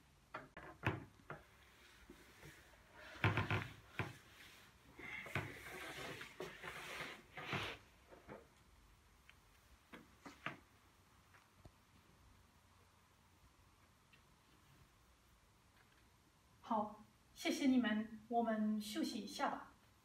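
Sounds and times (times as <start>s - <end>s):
knocks and clicks at desks: 0.3s - 1.5s, 3.2s - 4.2s.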